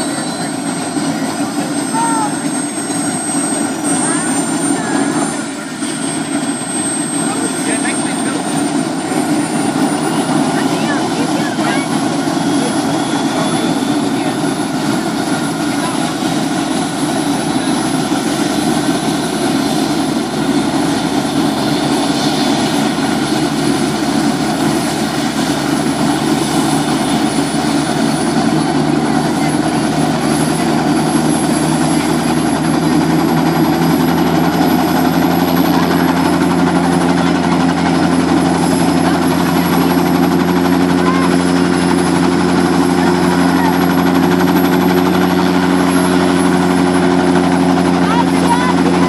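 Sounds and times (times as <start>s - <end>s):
helicopter rotor droning: 0.0s - 49.0s.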